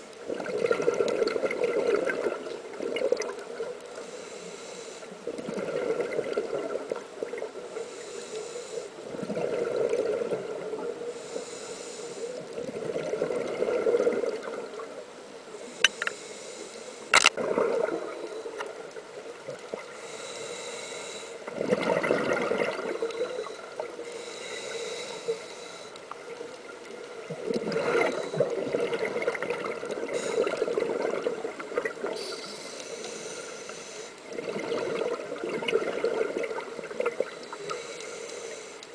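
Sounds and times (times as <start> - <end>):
exhaled bubbles underwater: 0.3 - 3.8, 5.2 - 7.7, 9.1 - 11.0, 12.6 - 15.0, 17.4 - 19.9, 21.5 - 24.0, 26.2 - 32.3, 34.2 - 37.8
regulator hiss: 3.9 - 5.2, 7.7 - 9.0, 11.1 - 12.5, 15.5 - 17.3, 19.9 - 21.5, 23.0 - 26.1, 32.0 - 34.3, 37.3 - 38.9
sharp clicks: 17.1 - 17.4.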